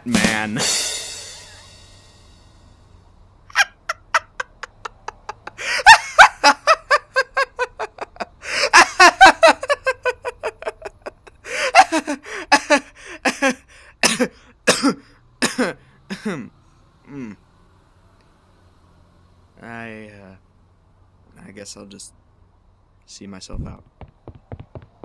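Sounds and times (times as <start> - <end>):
person laughing hard: 3.5 - 14.3
short breaths: 5.6 - 5.9, 8.4 - 8.7, 11.4 - 15.2.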